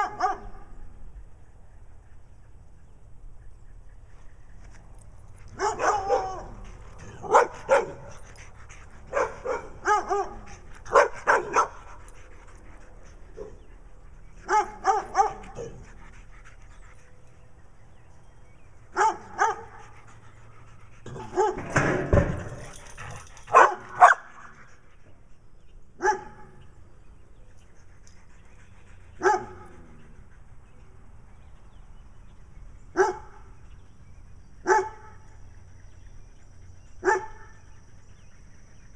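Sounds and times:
dog barking: 0:00.0 - 0:00.5, 0:05.6 - 0:06.5, 0:07.2 - 0:08.0, 0:09.1 - 0:11.8, 0:14.5 - 0:15.8, 0:19.0 - 0:19.7, 0:23.5 - 0:24.3, 0:26.0 - 0:26.4, 0:29.2 - 0:29.6, 0:33.0 - 0:33.3, 0:34.7 - 0:35.1, 0:37.0 - 0:37.4.

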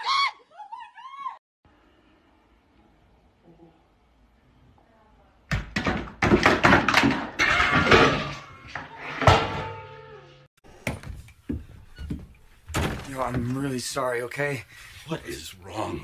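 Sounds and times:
loud bangs and clattering knocks: 0:05.5 - 0:09.8.

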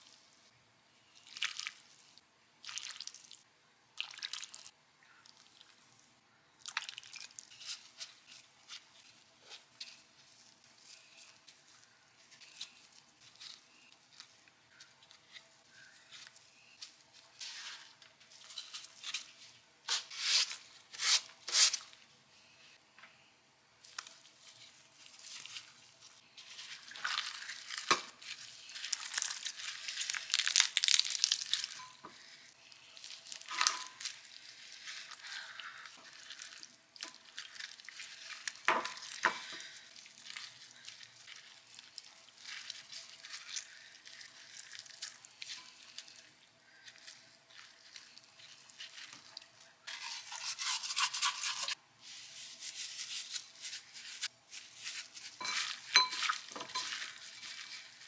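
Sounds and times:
chicken meat tearing and squelching: 0:01.2 - 0:03.4, 0:23.9 - 0:50.6
sharp cracks of bones: 0:30.0 - 0:31.7.

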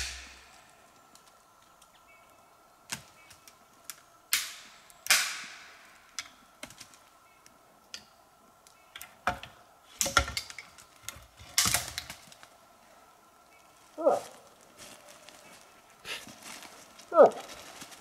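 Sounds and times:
twigs cracking and snapping: 0:00.0 - 0:12.6, 0:16.3 - 0:18.0
dry leaves rustling: 0:10.6 - 0:18.0.

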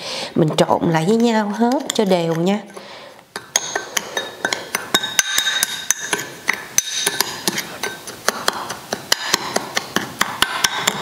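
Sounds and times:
metal spoon clinking in ceramic bowl: 0:03.4 - 0:08.1.

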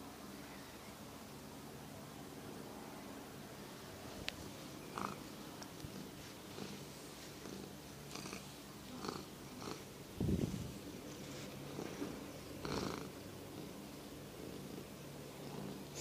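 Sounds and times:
cat purring: 0:04.8 - 0:16.0
fur rustling against hand: 0:10.2 - 0:12.4.

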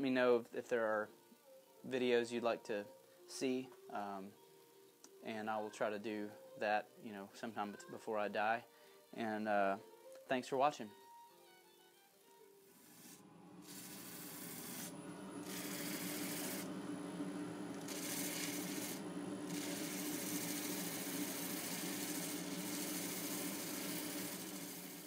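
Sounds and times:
small motor running: 0:12.8 - 0:25.0.

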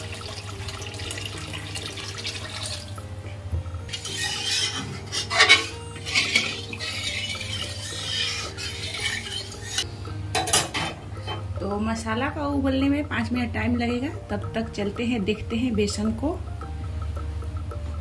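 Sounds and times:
water pouring into a pan: 0:00.0 - 0:03.0
spatula stirring and scraping a pan: 0:03.9 - 0:09.9.

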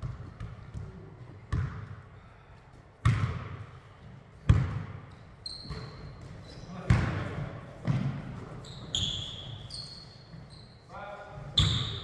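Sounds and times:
basketball bouncing on hardwood floor: 0:00.0 - 0:01.9, 0:03.0 - 0:03.6, 0:04.4 - 0:05.0, 0:05.6 - 0:08.2.

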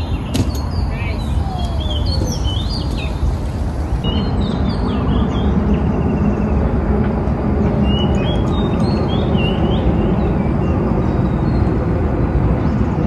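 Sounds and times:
birds chirping: 0:00.0 - 0:06.7
low outdoor rumble: 0:00.0 - 0:13.0.

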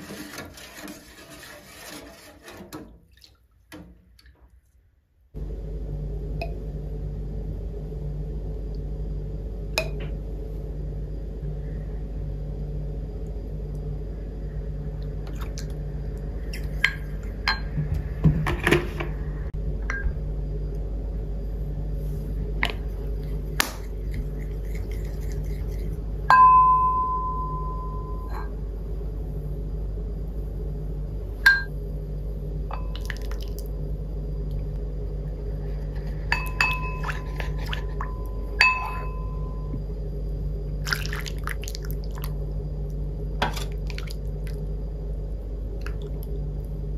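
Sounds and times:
wooden spoon scraping bowls: 0:00.0 - 0:02.8, 0:22.1 - 0:26.1, 0:35.6 - 0:39.4
steady low hum: 0:05.2 - 0:46.9
bowl clinks ringing: 0:16.8 - 0:17.7, 0:26.3 - 0:28.5, 0:31.4 - 0:31.7, 0:36.3 - 0:39.8.

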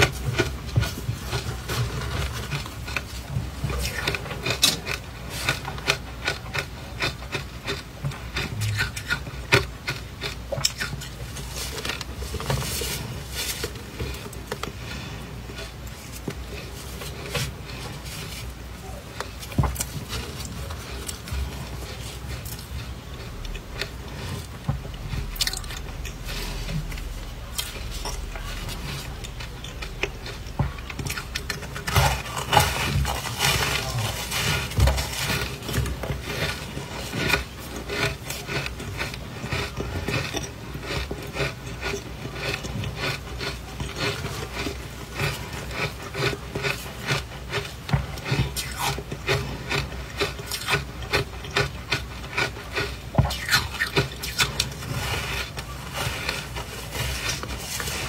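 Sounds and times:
crunching ice chewing: 0:00.0 - 0:58.0.

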